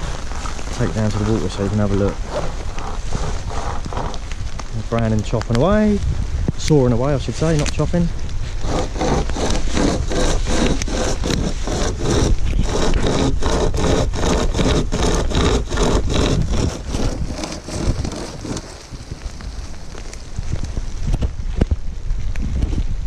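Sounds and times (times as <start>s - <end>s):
hand saw cutting log: 0.9s - 4.3s, 8.6s - 19.0s.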